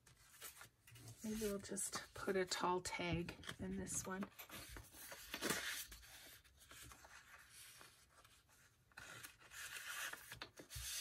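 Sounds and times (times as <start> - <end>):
paper rustling and rubbing: 0.0 - 1.8, 4.2 - 11.0.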